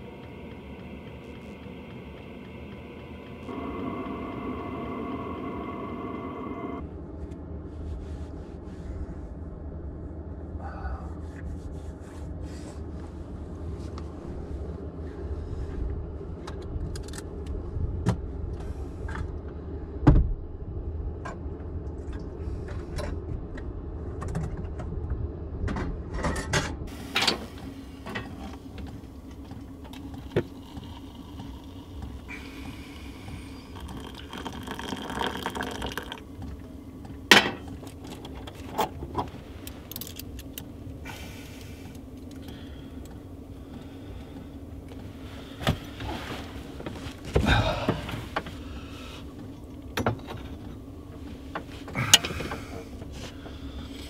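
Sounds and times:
low rumble: 0:00.0 - 0:26.1
water poured into mug: 0:30.2 - 0:32.1, 0:33.6 - 0:36.2.

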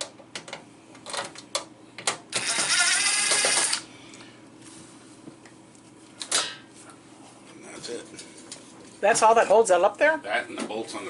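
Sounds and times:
cordless drill running: 0:02.3 - 0:03.9.

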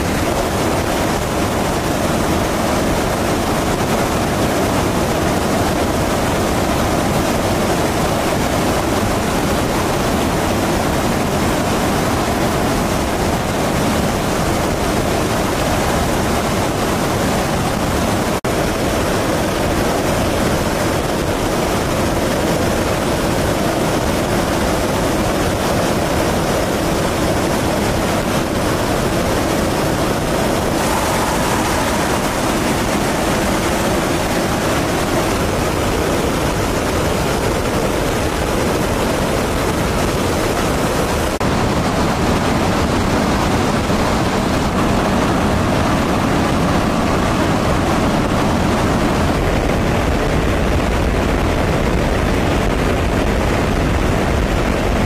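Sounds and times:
jet engine roar: 0:00.0 - 0:55.0.

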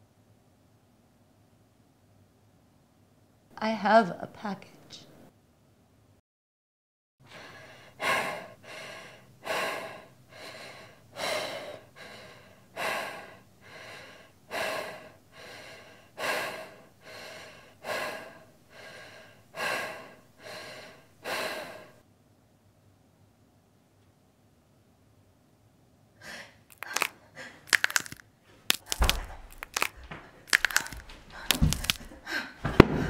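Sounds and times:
person breathing hard: 0:07.2 - 0:22.0, 0:26.2 - 0:33.0.

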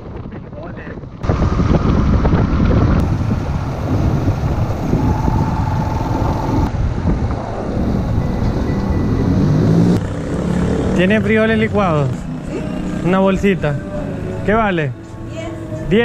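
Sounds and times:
wind rumbling on microphone: 0:00.0 - 0:11.0
vehicle running: 0:01.2 - 0:16.0
faint steady whine: 0:03.0 - 0:06.7.

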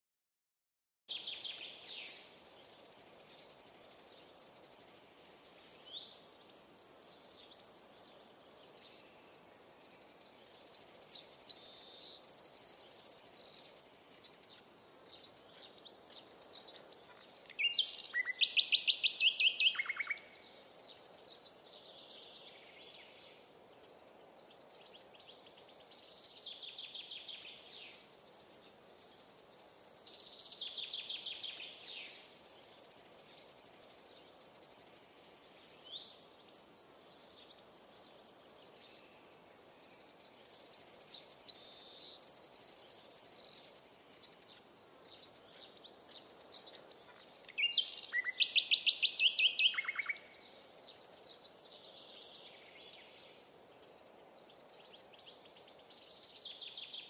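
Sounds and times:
faint background hiss: 0:01.1 - 0:57.0
songbirds singing and trilling: 0:01.1 - 0:57.0.

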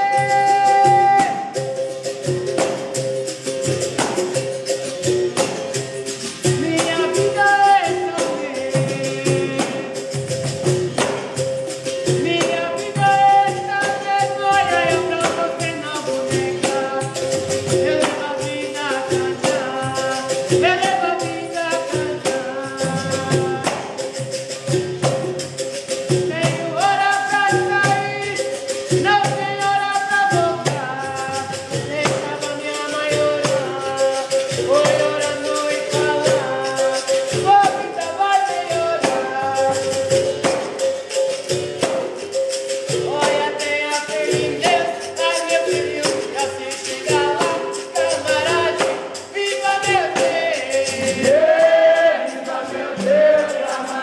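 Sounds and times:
man singing: 0:00.0 - 0:01.8, 0:06.4 - 0:10.4, 0:12.0 - 0:24.2, 0:26.2 - 0:40.5, 0:42.9 - 0:54.0
shaken rattles: 0:00.0 - 0:54.0
tambourine: 0:00.0 - 0:54.0.

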